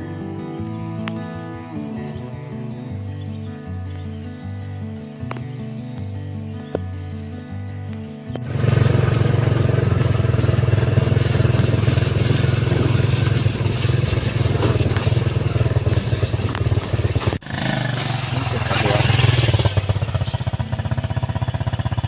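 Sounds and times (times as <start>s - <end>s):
motorcycle engine running: 8.3s - 22.0s.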